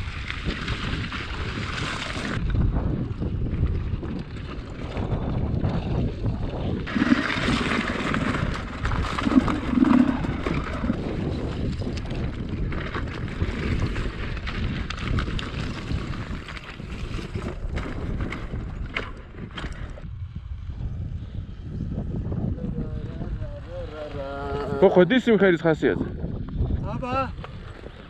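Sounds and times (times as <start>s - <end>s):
dirt bike engine running: 0.0s - 22.4s
wind buffeting microphone: 0.0s - 28.0s.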